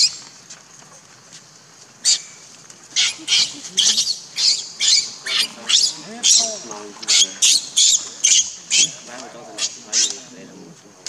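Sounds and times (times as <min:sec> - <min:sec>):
baby monkey screaming: 0:00.0 - 0:00.2, 0:02.0 - 0:02.4, 0:03.0 - 0:10.3.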